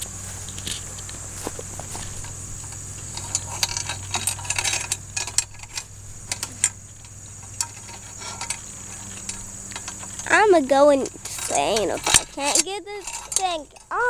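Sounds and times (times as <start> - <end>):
metal chain rattling and clinking: 2.0 - 14.0.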